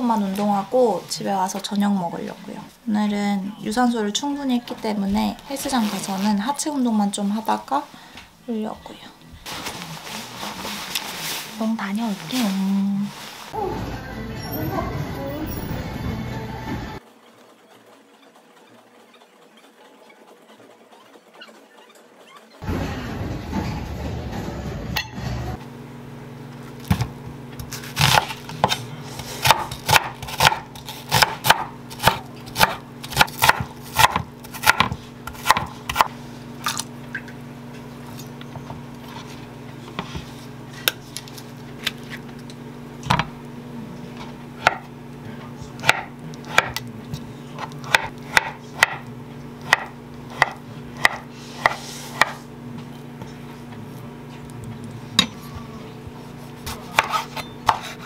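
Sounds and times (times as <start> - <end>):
steady low hum: 22.6 - 58.0
knife chopping on wooden board: 26.8 - 36.1, 44.6 - 44.9, 45.8 - 49.0, 49.6 - 52.4, 56.6 - 58.0.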